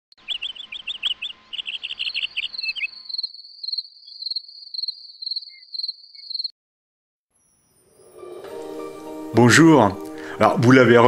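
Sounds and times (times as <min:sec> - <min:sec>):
bird-like chirps: 0:00.1 - 0:06.5
cricket-like insect trill: 0:00.3 - 0:06.5.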